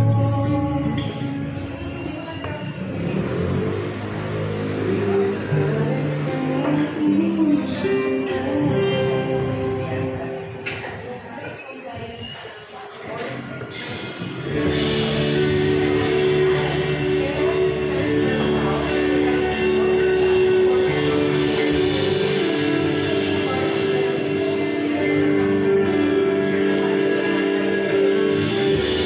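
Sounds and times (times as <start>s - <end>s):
background music with held notes: 0.0s - 11.0s, 14.4s - 29.0s.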